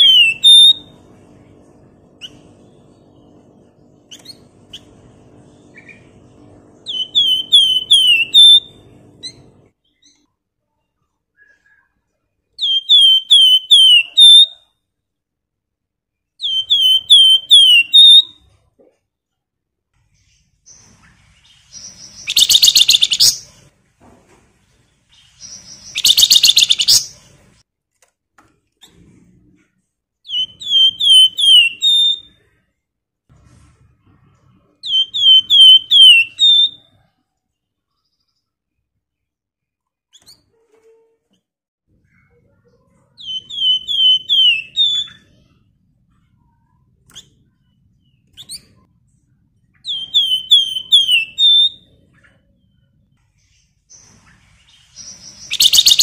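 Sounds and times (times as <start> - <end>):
songbird whistling phrases: 0.0 - 0.9, 6.9 - 8.7, 12.6 - 14.7, 16.4 - 18.4, 21.8 - 23.4, 25.4 - 27.1, 30.2 - 32.4, 34.8 - 36.9, 43.2 - 45.5, 49.8 - 51.9, 55.0 - 56.0.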